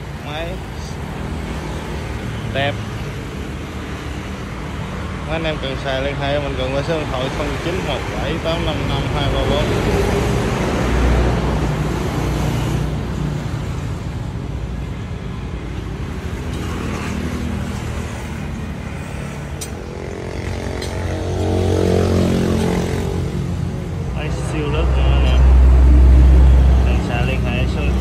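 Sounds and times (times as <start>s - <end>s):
road traffic rumble: 0.0s - 28.0s
motor vehicle passing: 16.7s - 28.0s.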